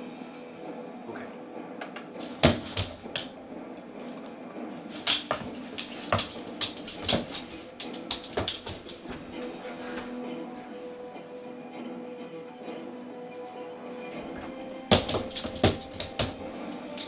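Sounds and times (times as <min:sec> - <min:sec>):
footsteps on hard floor: 0:02.3 - 0:03.3, 0:05.0 - 0:10.2, 0:14.1 - 0:17.0.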